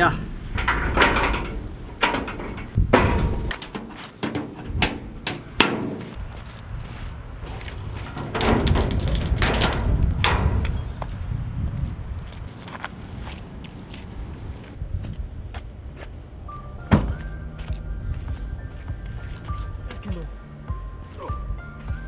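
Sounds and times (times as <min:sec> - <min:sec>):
metal gate clanking shut: 0:00.0 - 0:06.2, 0:08.1 - 0:10.8.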